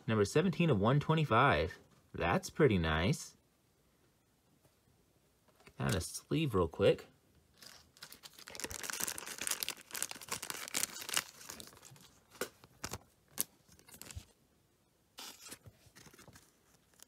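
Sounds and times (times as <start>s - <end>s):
plastic sleeve crinkling: 7.5s - 14.4s.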